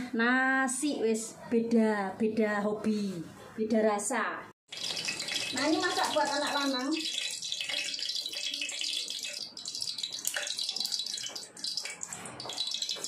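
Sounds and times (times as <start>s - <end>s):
oil sizzling in a frying pan: 4.7s - 13.0s.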